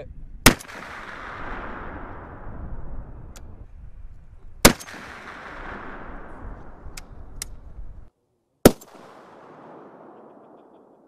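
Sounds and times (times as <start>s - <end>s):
rifle shots echoing: 0.4s - 2.6s, 4.6s - 7.4s, 8.6s - 11.0s.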